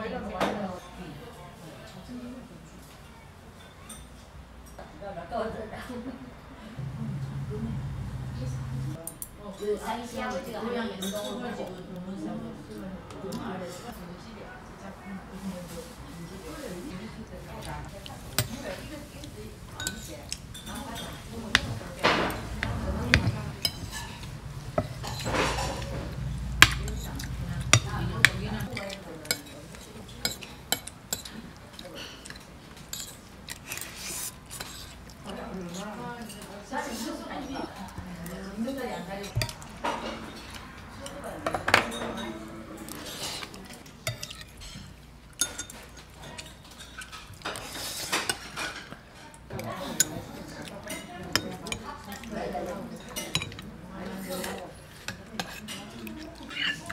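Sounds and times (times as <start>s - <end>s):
metal spoon scraping a plate: 22.3s - 31.3s.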